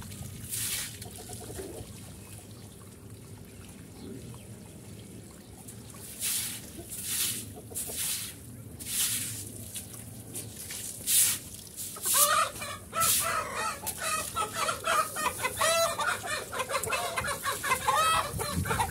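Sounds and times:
hose running water: 0:00.0 - 0:01.8, 0:05.6 - 0:18.9
scrub brush on wet concrete: 0:00.4 - 0:01.5, 0:06.0 - 0:18.8
chickens clucking: 0:01.0 - 0:01.9, 0:06.7 - 0:08.3, 0:12.0 - 0:18.9.

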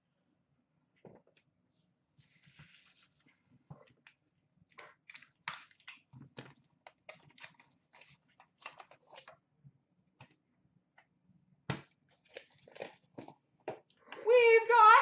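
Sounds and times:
plastic card cases scraping and clicking: 0:04.8 - 0:09.4.

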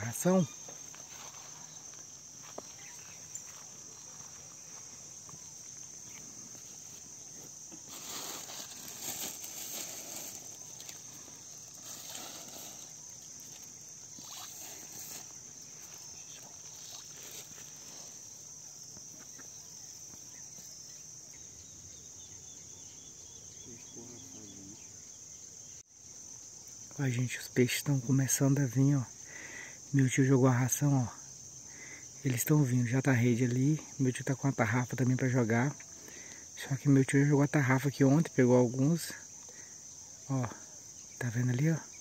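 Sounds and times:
insects chirring: 0:00.0 - 0:42.0
rustling or splashing: 0:07.9 - 0:15.4, 0:16.4 - 0:17.9.

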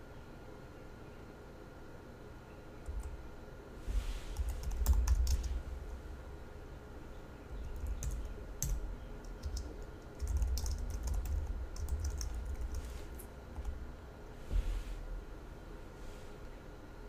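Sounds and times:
keyboard typing clicks: 0:04.4 - 0:05.5, 0:07.6 - 0:12.8.

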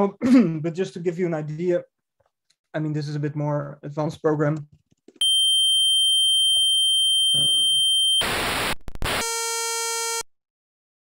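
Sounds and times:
high sine tones: 0:05.2 - 0:10.2
noise burst: 0:07.4 - 0:09.2.

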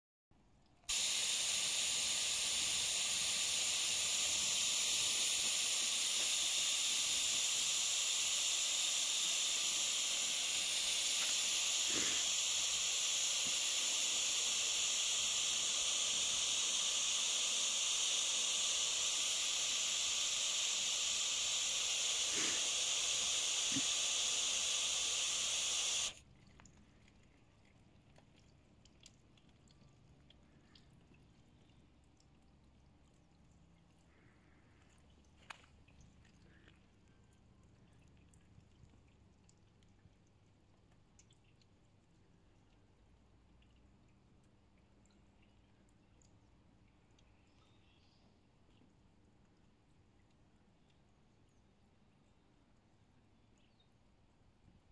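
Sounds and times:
faint water drips: 0:00.4 - 0:54.9
water spraying from a nozzle: 0:00.9 - 0:26.3.

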